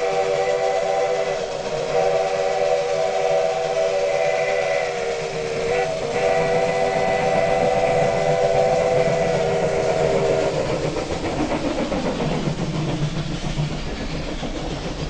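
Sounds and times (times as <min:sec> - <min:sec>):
steam locomotive chime whistle: 0:00.0 - 0:10.6
train running rumble: 0:00.0 - 0:15.0.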